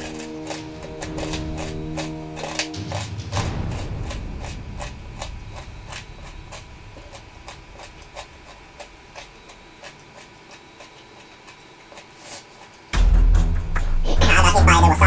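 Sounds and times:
faint high whine: 0.0s - 11.9s.

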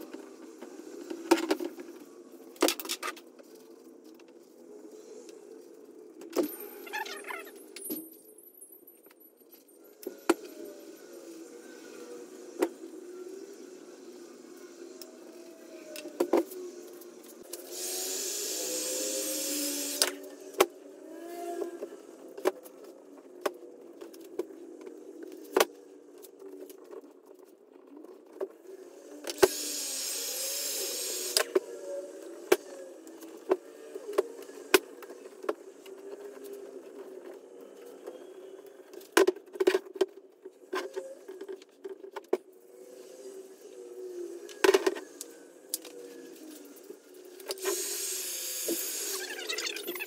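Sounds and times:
heat gun blowing: 17.6s - 20.1s, 29.4s - 31.5s, 47.6s - 49.3s.

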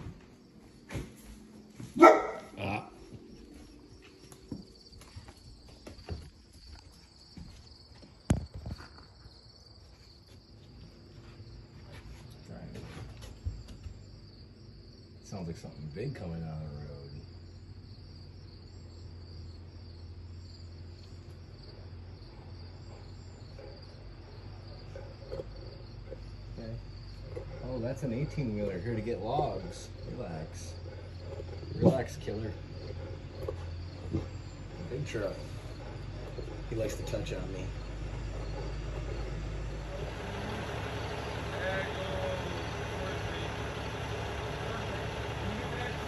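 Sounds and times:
crickets chirping: 0.0s - 46.0s
dog barking: 2.0s - 2.8s
truck engine rumble: 10.7s - 46.0s.

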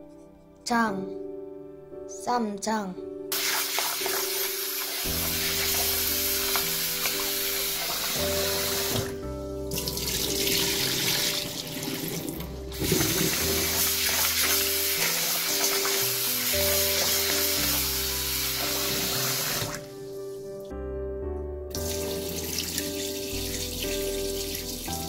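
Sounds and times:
background music with bass: 7.7s - 14.8s
tap water pouring into bowl: 9.8s - 14.6s.

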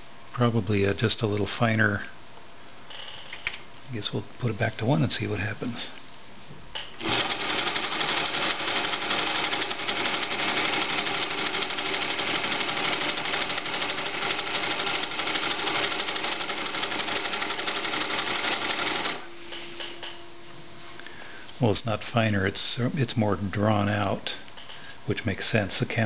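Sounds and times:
faint steady hum: 0.0s - 26.0s
sewing machine clatter: 7.0s - 19.2s.

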